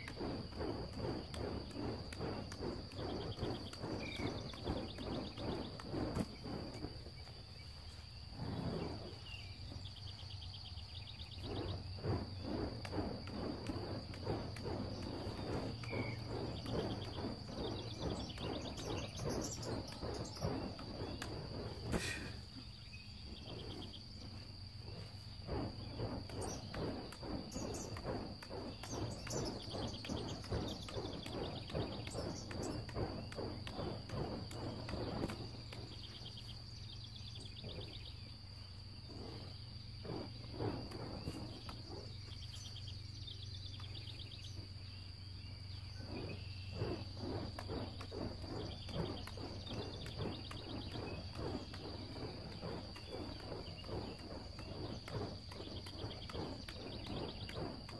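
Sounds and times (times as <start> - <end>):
birds chirping rapidly: 0.0 - 8.0, 8.7 - 38.4, 39.2 - 57.9
high insect drone: 0.0 - 57.9
low hum: 0.0 - 57.9.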